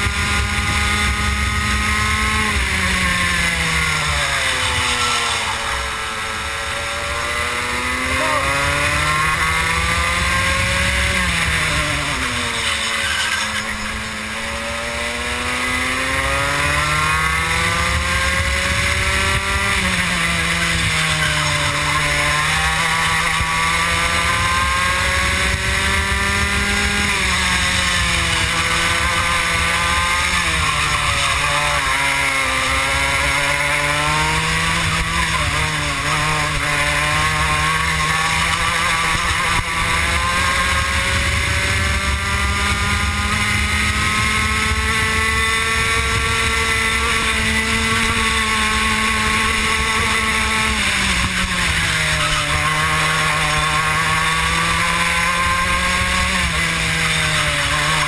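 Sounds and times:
two-stroke kart engine racing: 0.0s - 58.0s.

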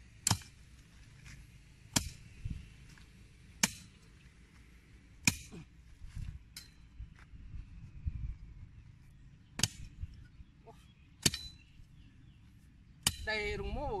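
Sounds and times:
digging tool striking hard soil: 0.2s - 0.6s, 1.9s - 2.2s, 5.2s - 5.6s, 9.6s - 9.9s, 13.0s - 13.3s.

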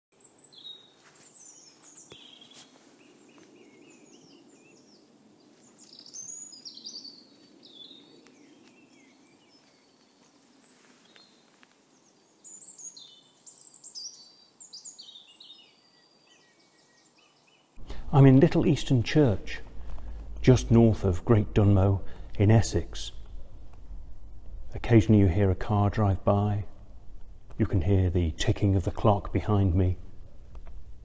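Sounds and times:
songbirds chirping and trilling: 0.2s - 30.6s
faint low background rumble: 17.8s - 31.0s.

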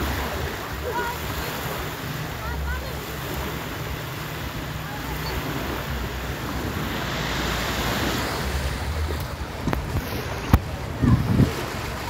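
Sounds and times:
small waves breaking on shore: 0.0s - 12.0s
wind rumbling on microphone: 4.6s - 12.0s.

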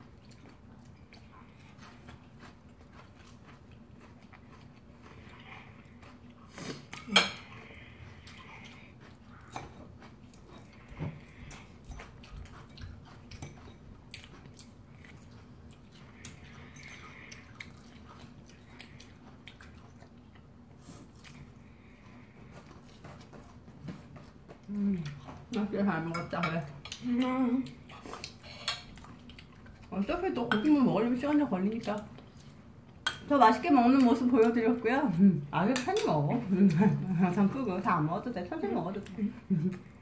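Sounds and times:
soft chewing: 0.0s - 40.0s
cutlery clinking on plates: 28.4s - 28.9s.

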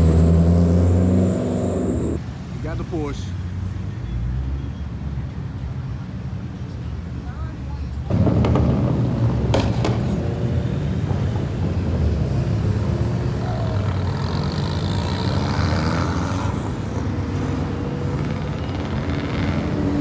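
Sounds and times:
car engines droning in traffic: 0.0s - 20.0s.

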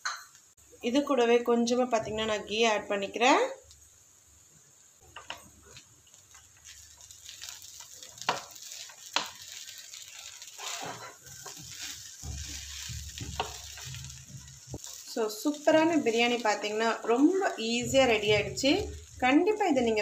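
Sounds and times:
spatula scraping through rice: 6.7s - 15.1s
spatula knocking against pan: 12.2s - 14.7s.

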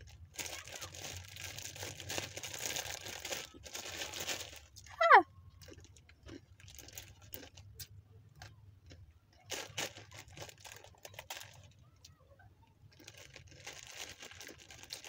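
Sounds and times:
dry noodles crunching: 0.0s - 4.9s, 5.6s - 12.2s, 12.8s - 15.0s
plastic packet crinkling: 0.0s - 6.0s, 6.6s - 7.7s, 9.5s - 11.8s, 12.9s - 15.0s.

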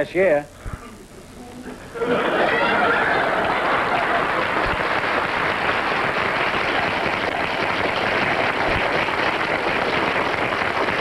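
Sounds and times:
audience laughing: 2.0s - 5.0s
audience applauding: 2.2s - 11.0s.

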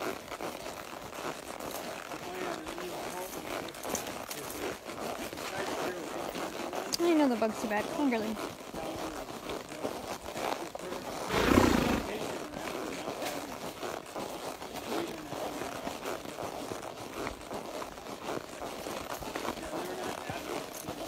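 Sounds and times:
horse snorting: 10.4s - 14.0s.

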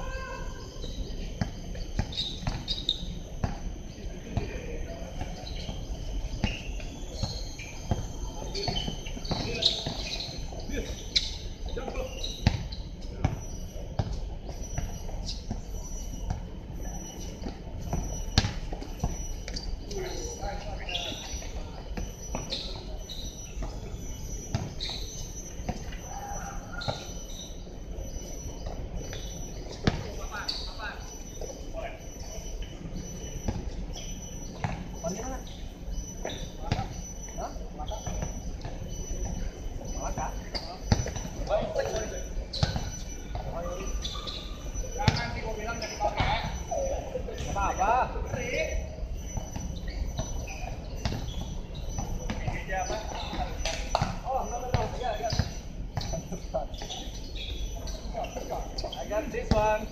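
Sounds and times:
faint high chirping: 0.0s - 59.9s
basketball dribbling thuds: 1.4s - 3.7s, 4.3s - 15.7s, 16.3s - 20.0s, 23.6s - 25.0s, 28.6s - 30.6s, 33.3s - 35.5s, 36.2s - 59.9s.

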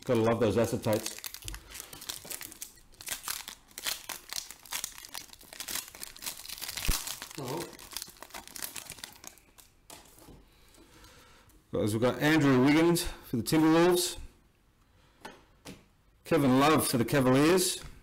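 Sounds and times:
foil wrapper crinkling: 0.4s - 10.2s.

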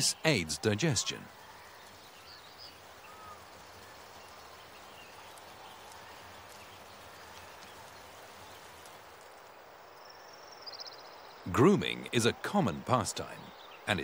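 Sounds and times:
faint bird chirps: 0.0s - 9.0s, 9.8s - 14.0s
water trickling over rock: 1.3s - 12.0s.

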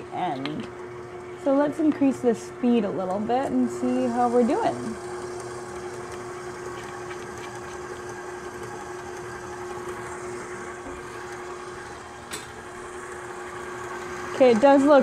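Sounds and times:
stand mixer motor humming: 0.0s - 15.0s.

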